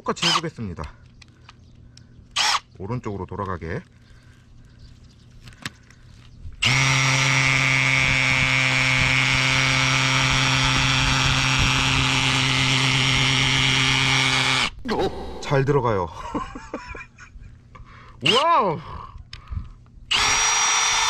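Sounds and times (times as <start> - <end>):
cordless drill whining: 2.4 - 2.6, 6.6 - 14.8, 20.1 - 21.0.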